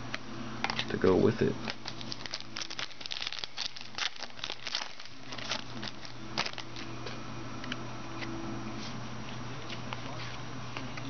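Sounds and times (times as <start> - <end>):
wrapper crinkling and tearing: 1.6 - 6.9.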